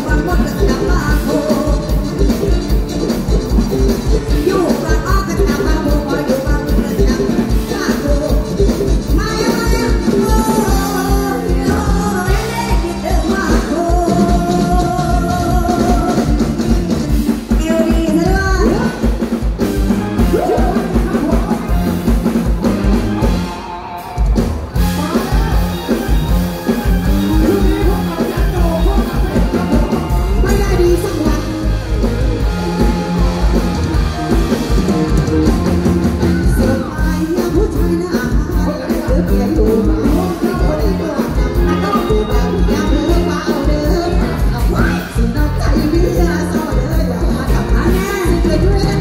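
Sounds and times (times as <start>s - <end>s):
woman singing into a microphone: 0.0s - 2.8s, 4.2s - 16.6s, 36.5s - 49.0s
drum kit beat: 0.0s - 49.0s
live band music: 0.0s - 49.0s.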